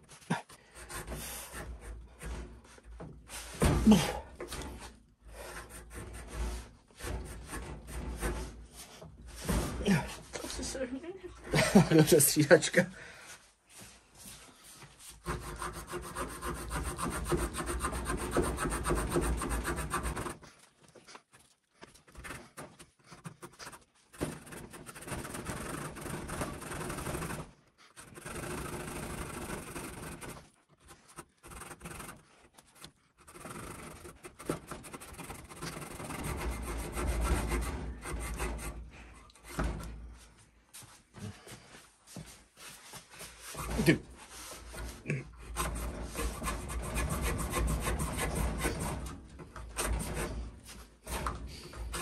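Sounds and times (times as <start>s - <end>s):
saw blade rasping through branch: 15.2s - 20.4s, 22.1s - 38.8s, 43.6s - 52.0s.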